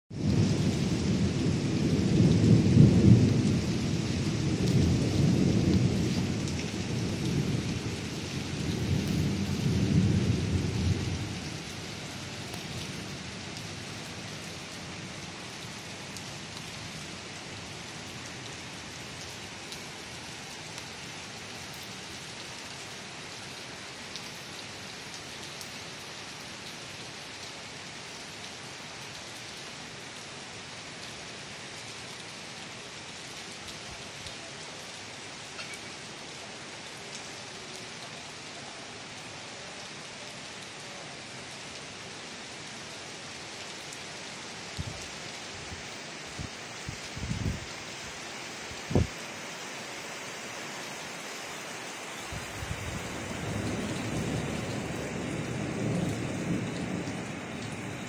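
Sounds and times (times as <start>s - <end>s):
steady rain hissing: 0.1s - 58.0s
thunder rumbling: 0.2s - 12.2s, 46.3s - 47.7s, 48.8s - 49.2s, 52.3s - 58.0s.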